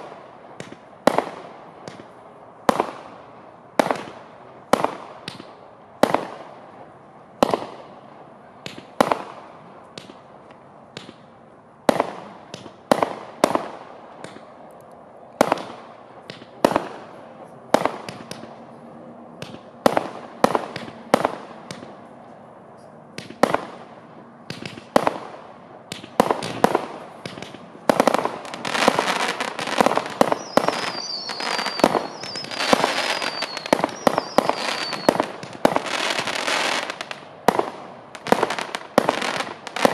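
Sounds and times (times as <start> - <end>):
firework shots firing: 0.0 - 3.2, 3.8 - 6.6, 7.4 - 7.9, 8.6 - 10.3, 10.9 - 14.5, 15.4 - 18.6, 19.4 - 22.1, 23.1 - 39.9
falling firework whistles: 28.6 - 35.3.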